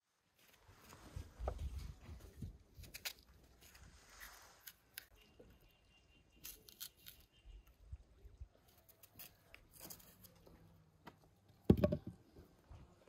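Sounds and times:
knife cutting apple: 2.4s - 5.2s, 6.4s - 7.4s.

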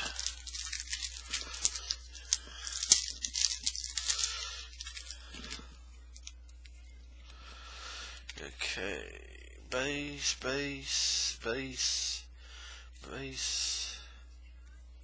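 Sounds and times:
wrapper tearing and crinkling: 0.0s - 6.8s.

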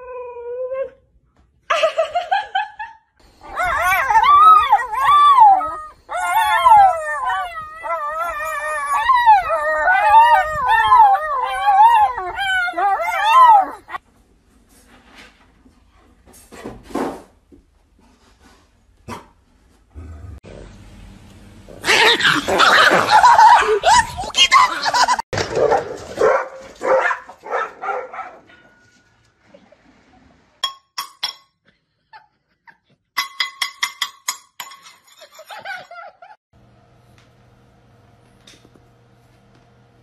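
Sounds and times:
dog howling: 3.4s - 14.0s
dog barking: 25.5s - 28.5s.

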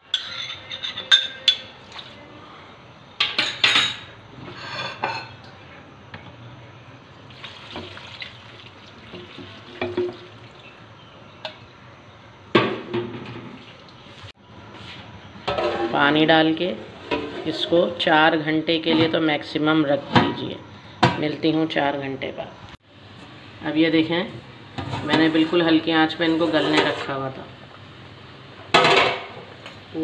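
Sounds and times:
water pouring into pot: 7.2s - 10.8s.

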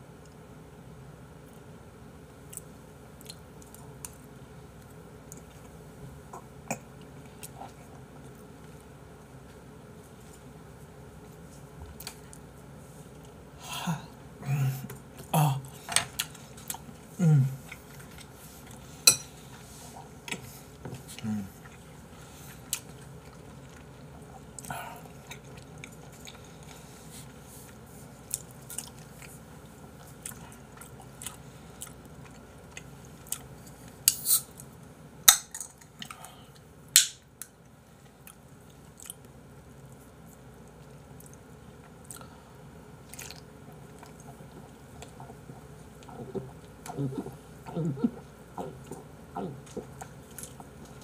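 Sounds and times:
chewing: 15.8s - 34.7s, 38.0s - 42.4s, 43.0s - 51.0s
man burping: 46.9s - 48.8s.

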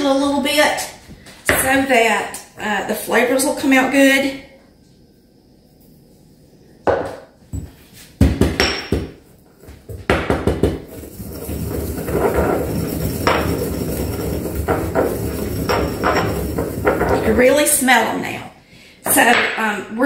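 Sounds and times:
pestle knocking in mortar: 8.2s - 11.0s
pestle grinding herbs: 10.4s - 17.2s.

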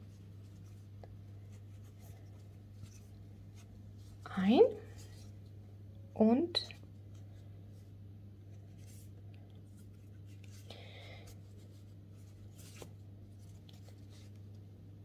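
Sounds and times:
yarn rustling on crochet hook: 0.0s - 5.3s
steady low hum: 0.0s - 15.0s.

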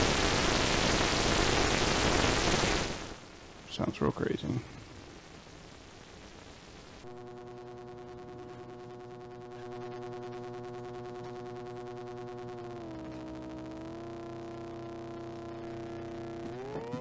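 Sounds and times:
buzzy synthesizer tone: 4.8s - 17.0s.

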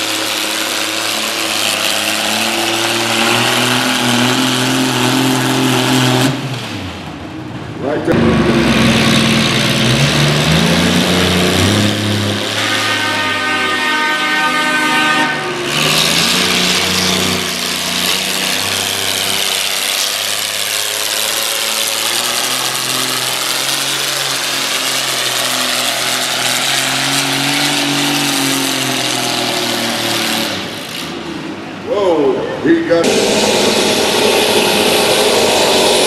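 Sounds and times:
tractor engine at high throttle: 0.0s - 36.0s
high steady whine: 32.0s - 36.0s.

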